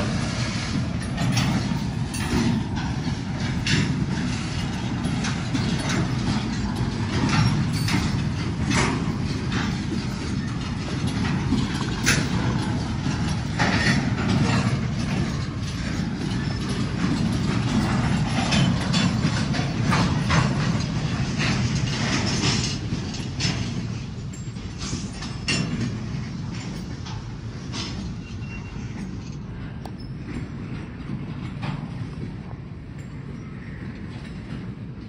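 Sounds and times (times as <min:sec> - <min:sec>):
freight cars rumbling: 0:00.0 - 0:35.0
metallic clicks and clanks: 0:00.0 - 0:35.0
wheel squeaks: 0:27.7 - 0:30.6.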